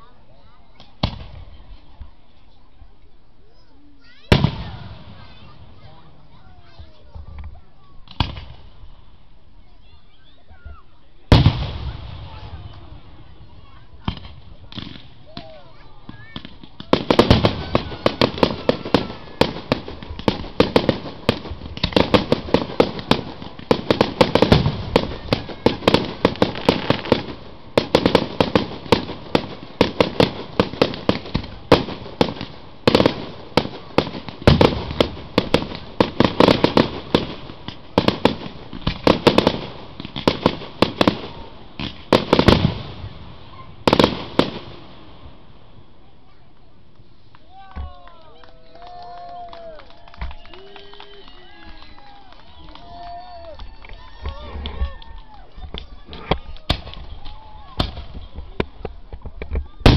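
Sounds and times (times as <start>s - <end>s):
fireworks bursting and crackling: 0.7s - 2.7s, 4.0s - 59.9s
heavy fireworks booms: 4.2s - 7.4s, 8.0s - 9.0s, 11.3s - 45.9s, 56.0s - 59.9s.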